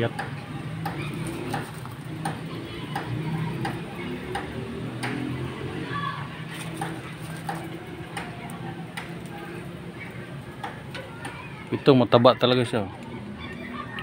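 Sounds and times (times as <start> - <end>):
steady ticking: 0.0 - 5.8, 6.7 - 11.6.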